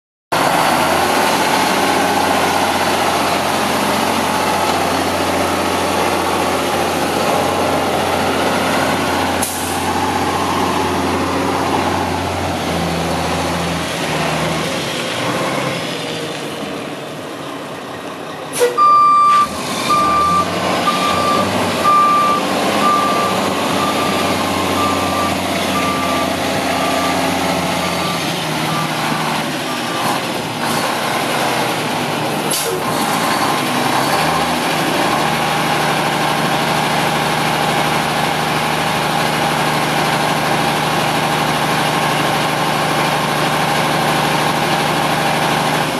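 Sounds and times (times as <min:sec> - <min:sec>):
diesel truck engine: 0:00.3 - 0:45.9
air brake hiss: 0:09.4 - 0:09.9, 0:18.5 - 0:18.8, 0:32.5 - 0:32.8
reversing alarm beeping: 0:18.6 - 0:30.1.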